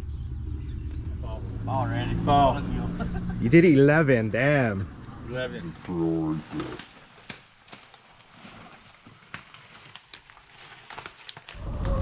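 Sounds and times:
loud low rumbling: 0.0s - 5.8s
footsteps on leaf litter: 6.5s - 11.6s
dry twigs snapping underfoot: 6.6s - 12.0s.

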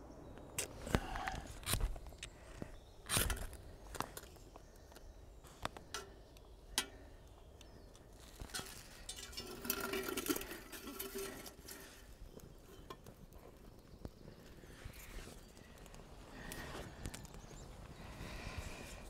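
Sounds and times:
striker clicks and scrapes: 0.6s - 2.4s, 3.1s - 4.3s.

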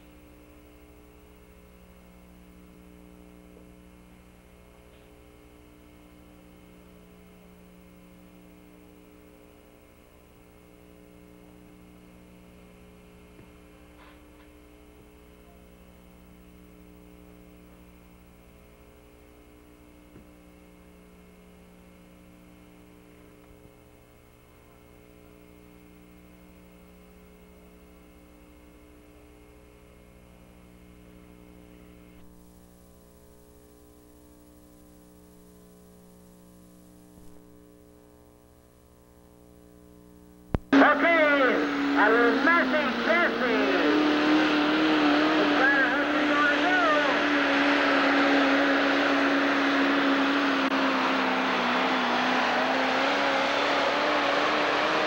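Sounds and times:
faint electrical mains hum: 0.0s - 41.6s.

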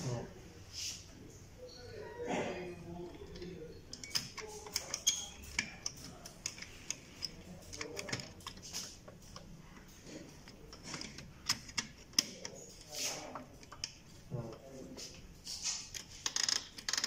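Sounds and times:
metal and plastic clicks: 3.2s - 14.7s.

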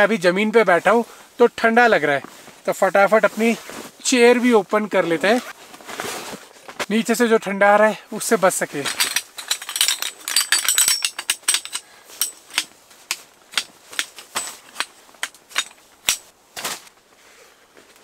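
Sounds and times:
camping chair frame clicks: 8.9s - 16.3s.

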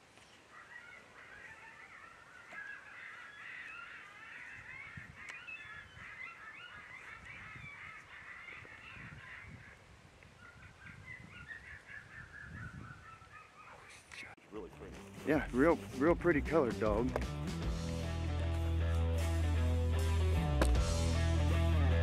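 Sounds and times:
distant birds calling: 0.0s - 22.0s
wind thumping on microphone: 8.6s - 13.0s.

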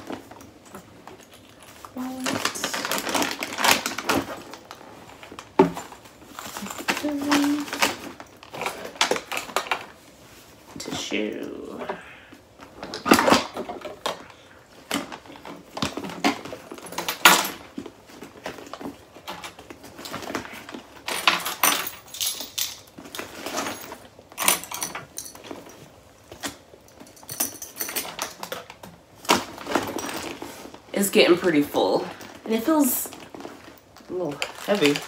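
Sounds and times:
clicks and knocks of items: 0.0s - 10.0s, 12.6s - 30.8s
bag rustling: 0.0s - 10.8s, 29.1s - 31.0s, 32.2s - 35.0s.

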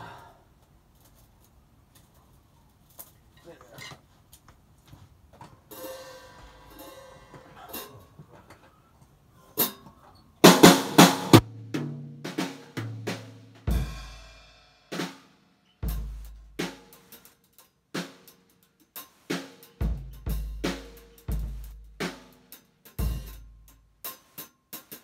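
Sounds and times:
snare and tom hits: 10.4s - 14.3s, 19.0s - 23.4s.

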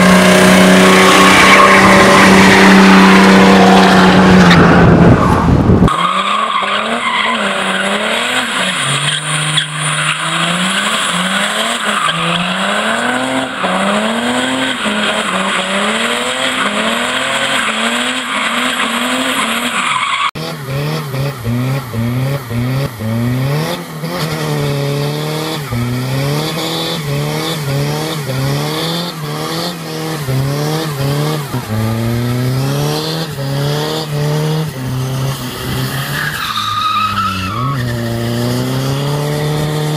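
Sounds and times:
diesel car engines revving: 0.0s - 39.9s
tyres spinning and squealing: 0.2s - 20.5s, 34.6s - 39.9s.

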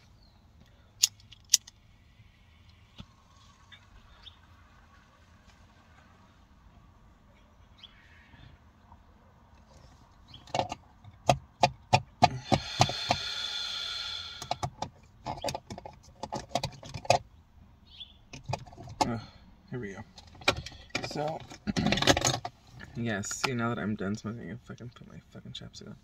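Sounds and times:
steady hiss: 12.4s - 14.6s
clicks and taps of handled objects: 14.4s - 17.2s.

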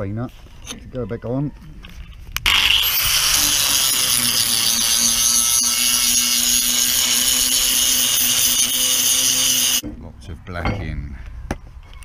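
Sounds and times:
angle grinder whining: 2.4s - 9.8s
disc scouring rust off steel: 2.4s - 9.8s.

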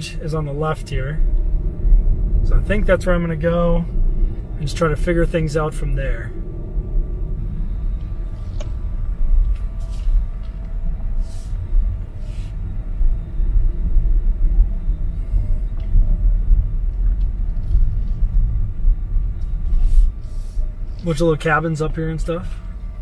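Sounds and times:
road and tyre rumble: 0.0s - 23.0s.

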